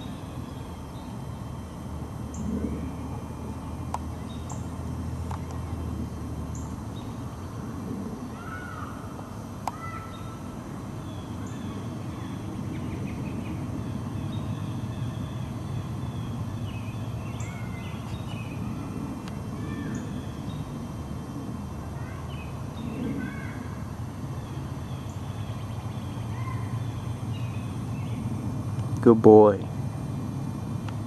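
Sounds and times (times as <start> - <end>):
low background rumble: 0.0 - 31.0
birds chirping and calling: 9.7 - 30.2.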